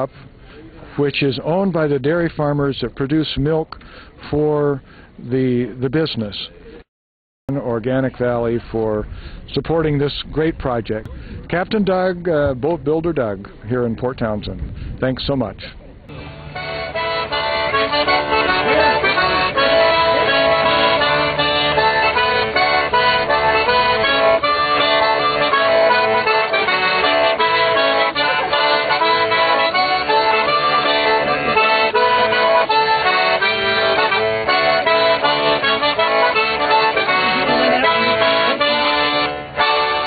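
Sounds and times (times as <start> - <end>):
accordion playing a tune: 16.1 - 40.0.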